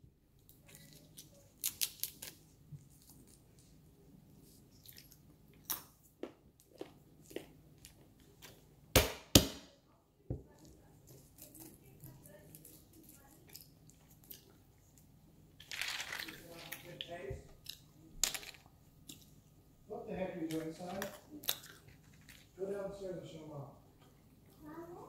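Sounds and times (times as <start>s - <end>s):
nutshells cracking and crunching: 0.4s - 2.4s, 15.6s - 19.3s, 20.4s - 22.6s
mallet striking walnut: 8.9s - 9.7s
nuts being chewed: 20.5s - 22.6s.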